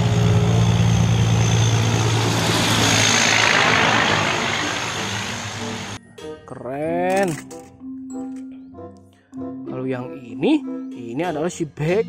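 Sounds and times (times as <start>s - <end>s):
diesel truck engine hum: 0.0s - 6.0s.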